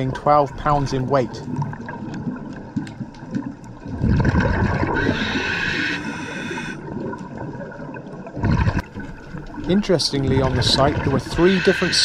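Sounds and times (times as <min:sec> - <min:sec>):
exhaled bubbles underwater: 0:00.0 - 0:12.0
regulator hiss: 0:11.4 - 0:12.0.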